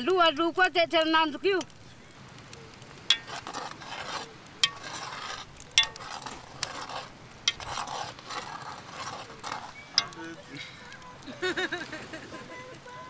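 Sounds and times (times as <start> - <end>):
spoon scraping pot: 3.1 - 11.0.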